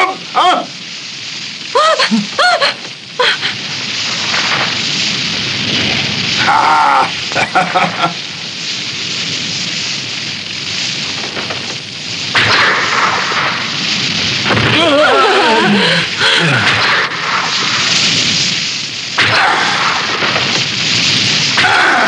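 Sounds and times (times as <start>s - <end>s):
cartoon blast rush: 1.5s - 8.9s, 12.2s - 22.0s.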